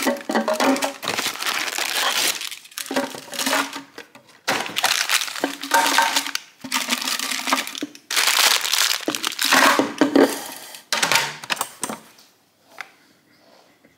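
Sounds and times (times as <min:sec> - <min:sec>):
plastic wrappers crinkling: 0:00.0 - 0:10.3.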